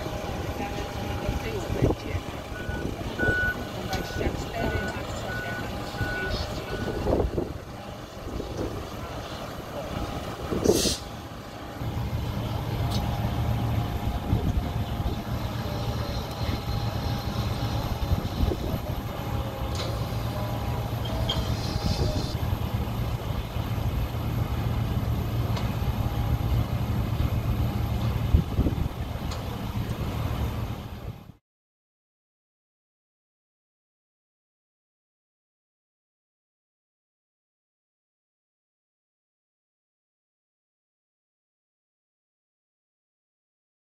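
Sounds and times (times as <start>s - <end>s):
vehicle engines low rumble: 0.0s - 31.4s.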